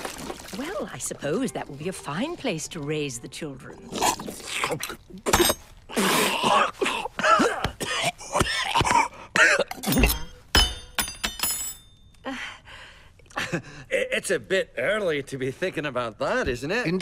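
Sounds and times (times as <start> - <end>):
glass and cutlery clinking: 5.3 - 5.7, 9.7 - 12.0
man coughing and choking: 6.0 - 10.3.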